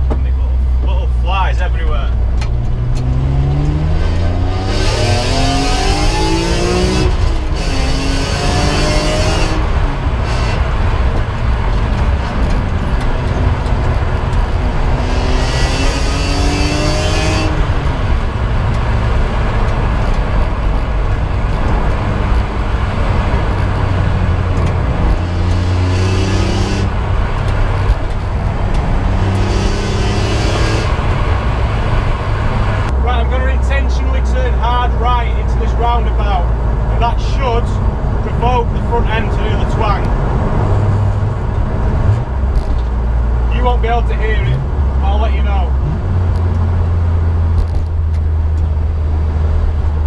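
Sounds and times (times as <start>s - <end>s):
car engine accelerating: 0.0s - 50.0s
road and tyre noise: 0.0s - 50.0s.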